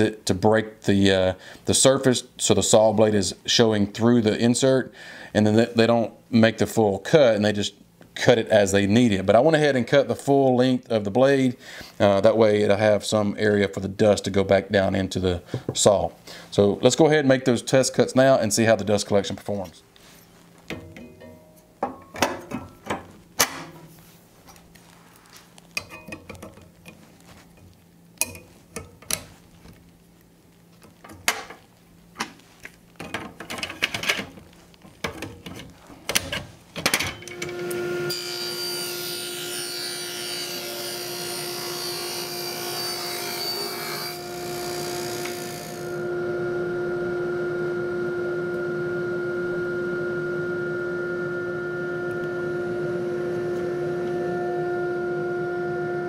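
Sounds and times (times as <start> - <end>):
table saw humming: 37.2 - 56.0.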